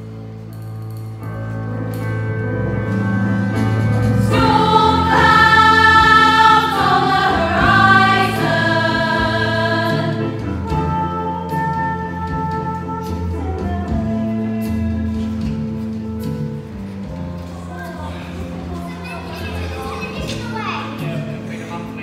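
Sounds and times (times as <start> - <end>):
sustained accompaniment: 1.4 - 14.6
choir singing in harmony: 3.8 - 12.4.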